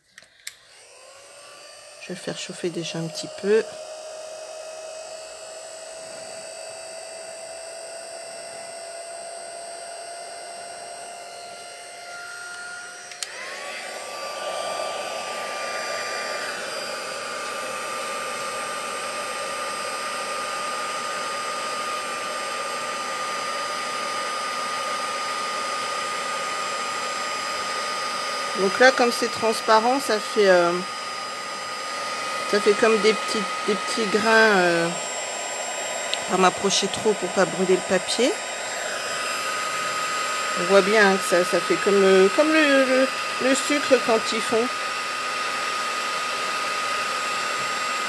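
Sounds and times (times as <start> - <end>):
heat tool whining: 0.0 - 48.0.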